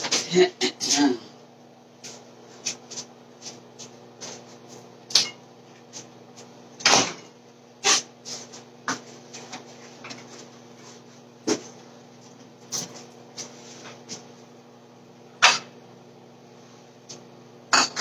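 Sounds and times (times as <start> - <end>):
steady low hum: 0.0 - 18.0
kitchen items knocking and clunking: 17.7 - 18.0.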